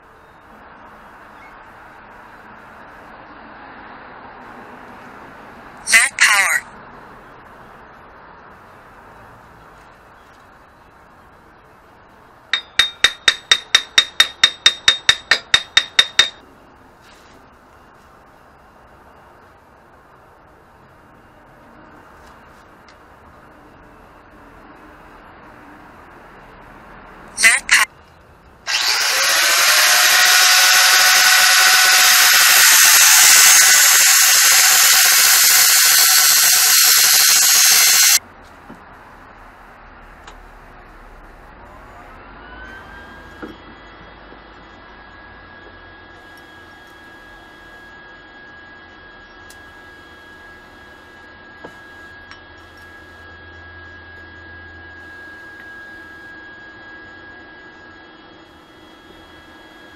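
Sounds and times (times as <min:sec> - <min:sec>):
angle grinder grinding steel: 0:12.6 - 0:16.4, 0:28.7 - 0:38.2
hammer tapping on metal: 0:12.6 - 0:16.4.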